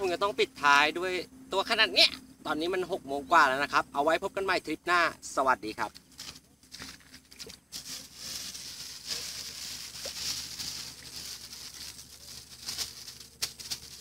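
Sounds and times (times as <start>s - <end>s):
plastic bag rustling: 6.0s - 14.0s.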